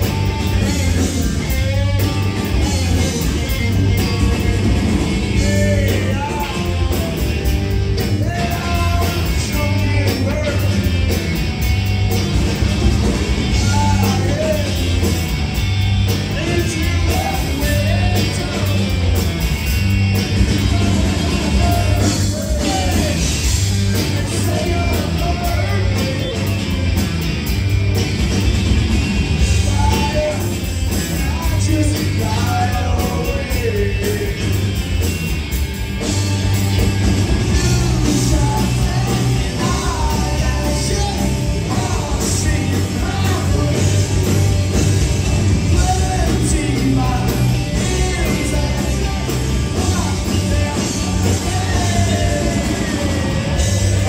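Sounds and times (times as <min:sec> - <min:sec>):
man singing lead vocal: 0:00.0 - 0:07.4, 0:08.0 - 0:11.0, 0:13.5 - 0:15.1, 0:16.2 - 0:19.1, 0:20.5 - 0:26.6, 0:29.5 - 0:34.6, 0:37.4 - 0:44.5, 0:45.7 - 0:54.0
drums: 0:00.0 - 0:54.0
electric guitar: 0:00.0 - 0:54.0.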